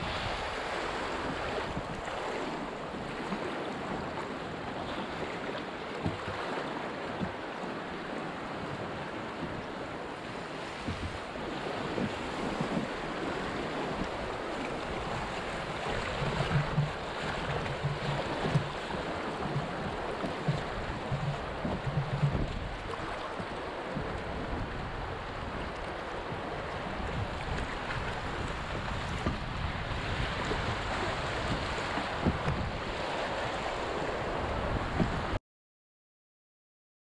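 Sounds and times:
river water rushing through rapid: 0.0s - 35.4s.

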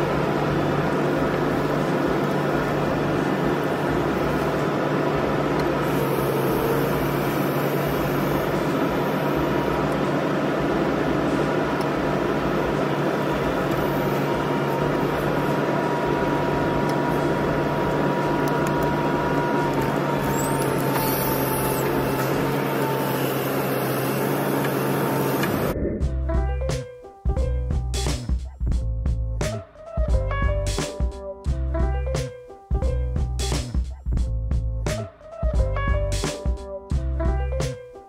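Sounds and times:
diesel engine under load: 0.0s - 25.8s
hydraulic whine: 0.0s - 26.1s.

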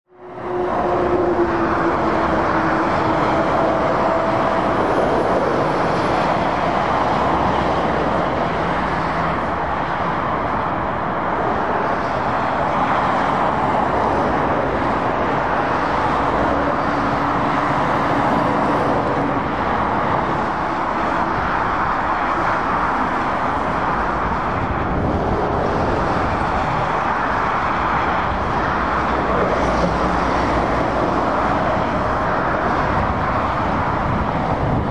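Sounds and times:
motorway traffic passing: 0.1s - 34.9s.

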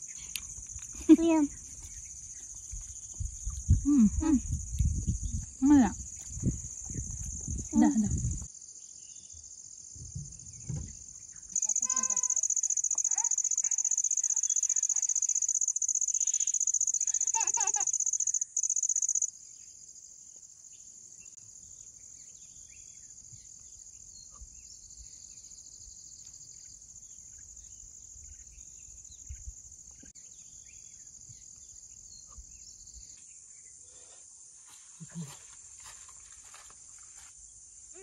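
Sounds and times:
crickets trilling: 0.0s - 38.0s
brief pitched call: 11.6s - 12.4s.

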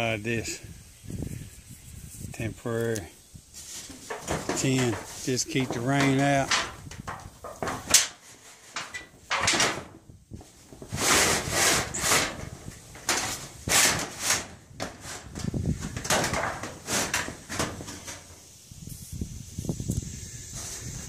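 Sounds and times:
tin sheet scraping metal roofing: 3.6s - 18.6s, 20.5s - 21.0s.

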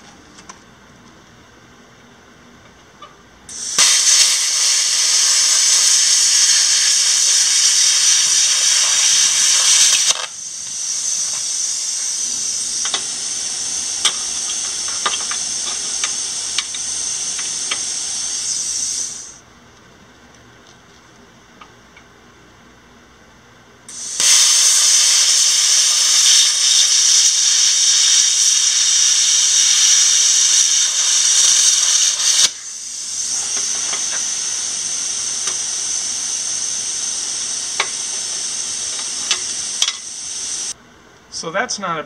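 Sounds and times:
crackles: 3.0s - 21.7s, 23.9s - 40.8s
plasma cutter hissing: 3.5s - 19.4s, 23.9s - 40.8s.

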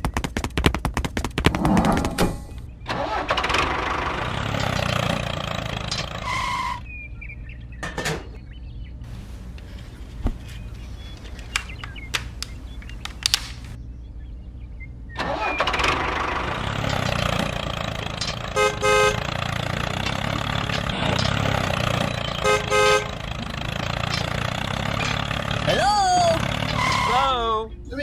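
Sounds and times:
plastic clicks: 11.1s - 13.8s
toy horn beeps: 18.5s - 19.3s, 22.3s - 23.2s, 26.8s - 27.4s.

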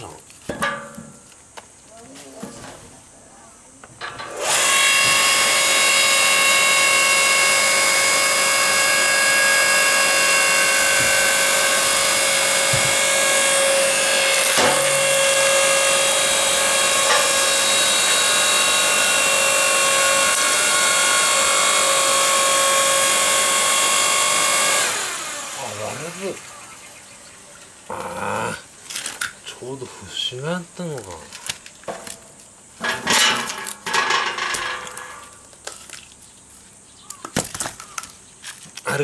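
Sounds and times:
log splitter motor whining: 4.0s - 29.4s.

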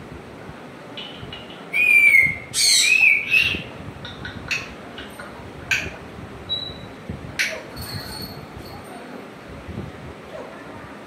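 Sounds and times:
parrot sharp chirps: 1.0s - 3.7s
parrot whistled calls: 1.7s - 3.7s.

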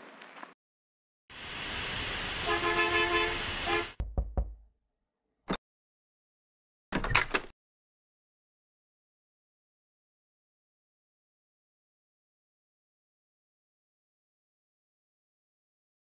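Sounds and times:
street traffic noise: 1.3s - 4.0s
car horn honking: 2.4s - 4.0s
knocks on wooden door: 4.0s - 4.7s.

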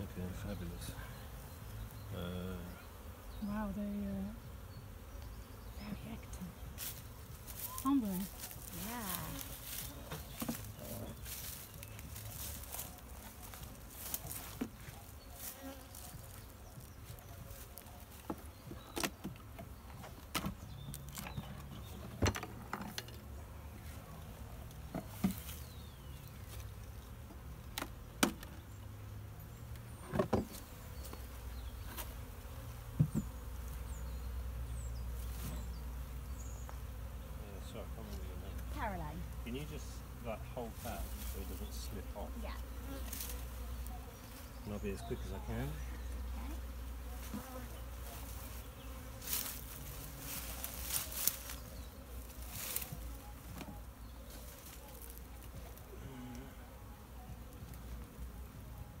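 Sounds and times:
honeybees buzzing: 0.0s - 59.0s
hive frames rustling and clicking: 9.4s - 23.3s
wooden hive boxes knocking: 32.9s - 33.4s.

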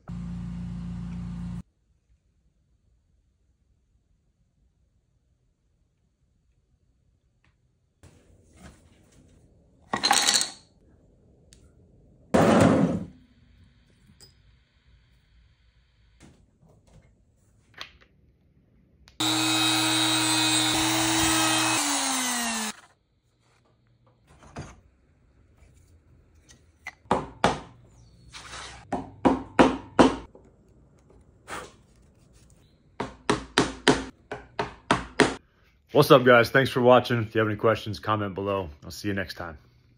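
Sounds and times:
router running and winding down: 19.2s - 22.9s.

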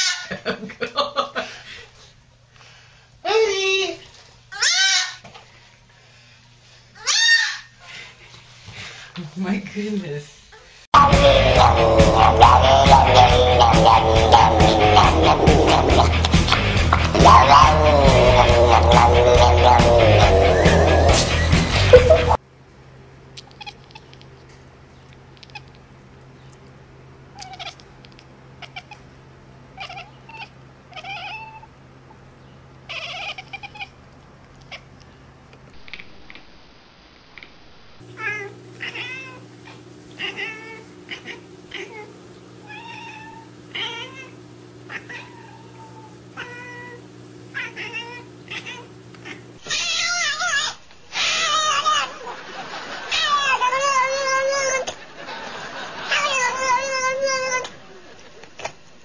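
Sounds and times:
cats meowing: 4.6s - 5.2s, 7.0s - 7.7s, 23.4s - 24.2s, 25.4s - 25.8s, 27.3s - 27.9s, 28.6s - 29.1s, 29.8s - 31.7s, 32.9s - 34.0s, 38.1s - 52.2s, 53.1s - 54.9s, 56.1s - 57.7s
loud animal call: 11.0s - 16.2s, 17.2s - 21.4s, 40.2s - 52.2s.

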